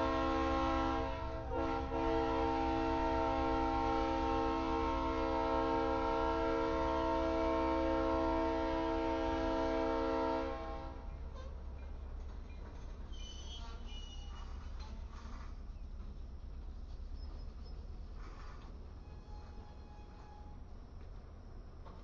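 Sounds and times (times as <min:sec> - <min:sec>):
locomotive air horn chord: 0:00.0 - 0:11.1
freight train rumble: 0:00.0 - 0:22.0.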